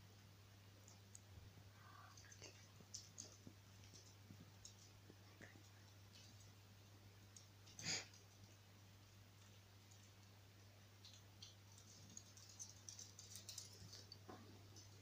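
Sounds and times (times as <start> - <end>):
low steady hum: 0.0 - 15.0
puppy claws clicking on floor: 2.1 - 6.6, 7.3 - 10.4, 11.0 - 15.0.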